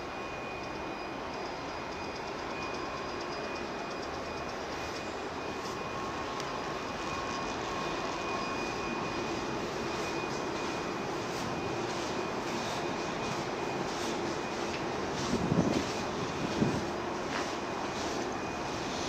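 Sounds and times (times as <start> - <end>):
ship machinery: 0.0 - 19.0.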